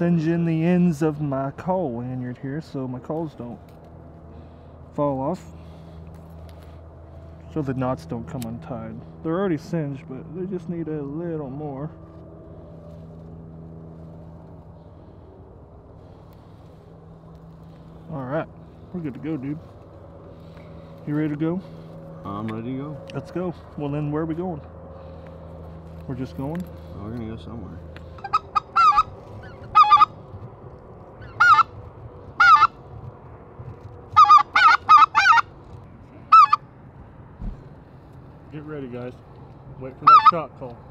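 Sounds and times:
engine humming: 0.0s - 40.9s
geese honking: 28.0s - 30.2s, 31.2s - 31.8s, 32.4s - 32.8s, 34.2s - 35.5s, 36.2s - 36.7s, 39.9s - 40.5s.

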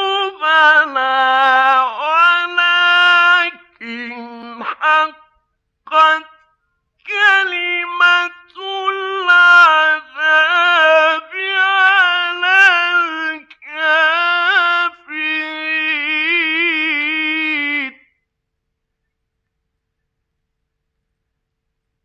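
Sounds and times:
man chanting recitation: 0.0s - 18.2s.

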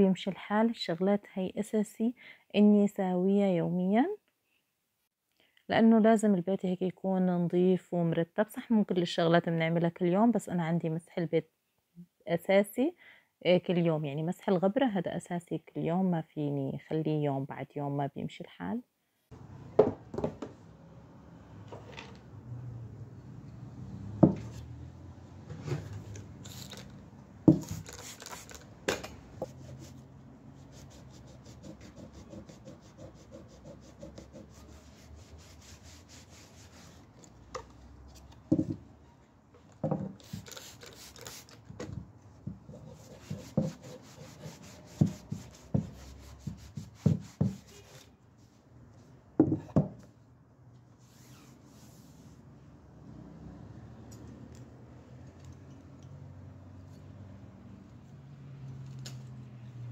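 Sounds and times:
cloth rubbing on wood: 29.4s - 37.1s, 42.6s - 48.1s, 51.0s - 52.4s.

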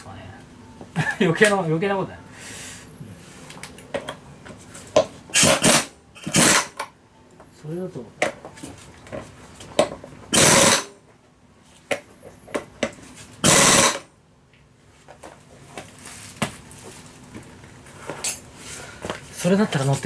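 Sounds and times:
pneumatic impact wrench: 5.3s - 6.9s, 10.3s - 11.0s, 13.4s - 14.1s.

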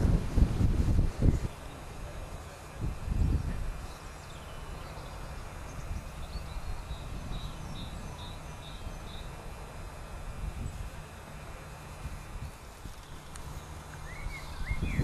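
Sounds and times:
wind buffeting microphone: 0.0s - 3.9s, 5.4s - 11.0s, 14.1s - 15.0s
small bird calling: 13.0s - 15.0s.

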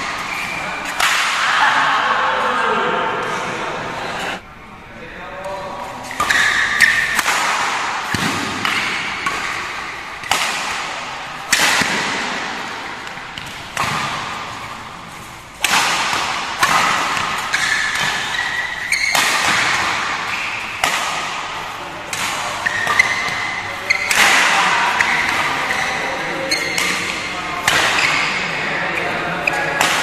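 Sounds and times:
shoes squeaking on court: 0.0s - 1.0s, 5.5s - 7.2s, 16.6s - 20.9s, 22.2s - 29.8s
rackets hitting shuttlecock: 0.0s - 1.7s, 5.9s - 30.0s.

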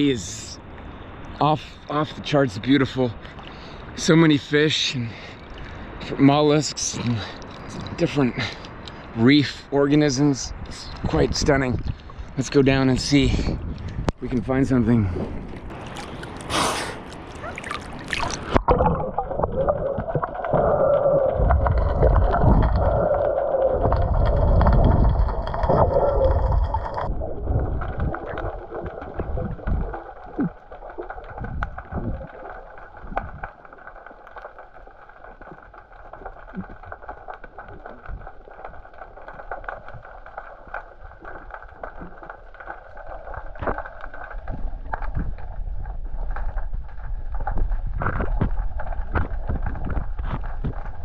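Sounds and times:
muffled underwater rushing: 10.6s - 51.0s.

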